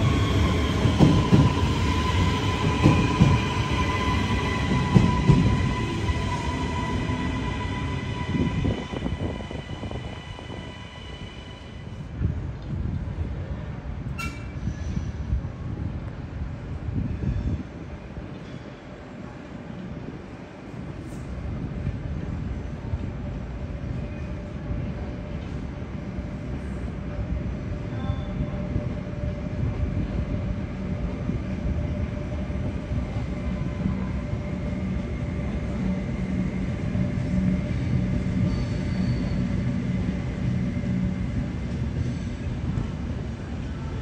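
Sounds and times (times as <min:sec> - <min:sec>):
train rumbling: 0:00.0 - 0:44.0.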